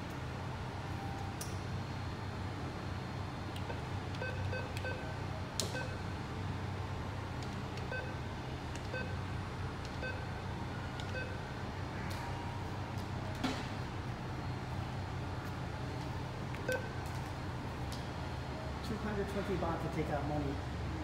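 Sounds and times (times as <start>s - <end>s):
steady low hum: 0.0s - 21.0s
keypad beeps: 3.7s - 5.1s, 9.9s - 11.4s, 16.6s - 17.0s.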